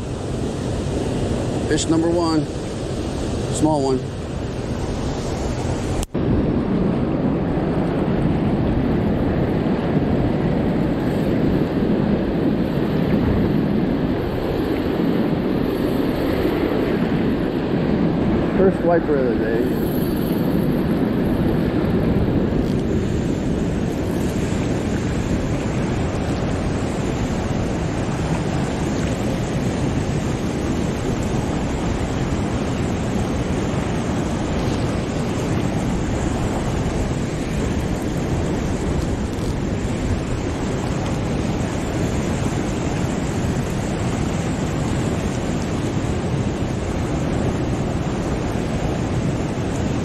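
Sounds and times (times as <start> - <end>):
water rushing through spillway: 0.0 - 50.0.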